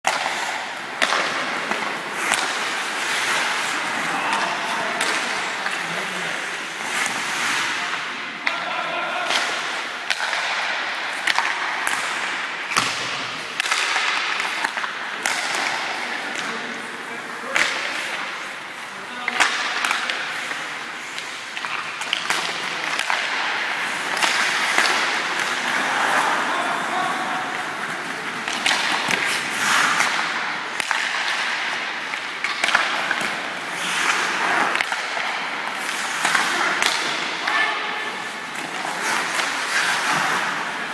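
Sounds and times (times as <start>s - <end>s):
hockey sticks striking pucks: 0.1s - 40.9s
ice skate blades scraping ice: 0.3s - 4.7s, 5.7s - 7.8s, 23.8s - 30.9s, 33.4s - 34.9s, 38.2s - 40.9s.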